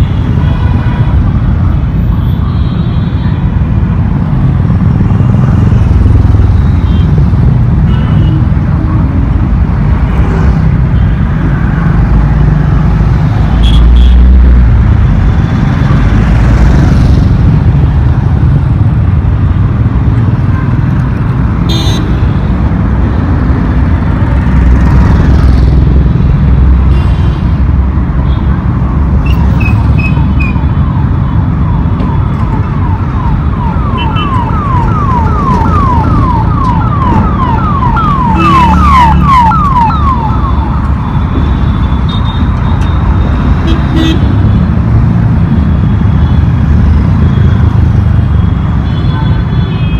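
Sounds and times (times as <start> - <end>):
road traffic rumble: 0.0 - 49.9
electronic siren yelping: 29.3 - 42.8.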